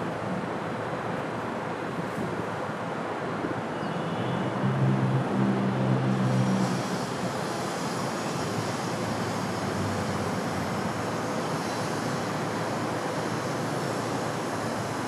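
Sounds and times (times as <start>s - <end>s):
city background noise: 0.0s - 15.0s
low engine drone: 4.5s - 14.6s.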